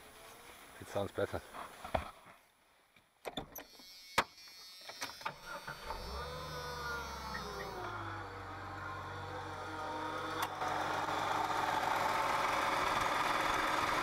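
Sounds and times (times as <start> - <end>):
car engine starting and idling: 5.4 - 14.0.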